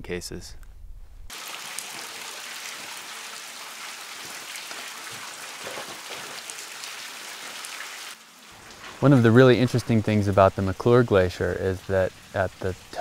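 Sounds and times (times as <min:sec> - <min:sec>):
meltwater dripping and splashing: 0:01.3 - 0:13.0
steady hiss: 0:08.1 - 0:13.0.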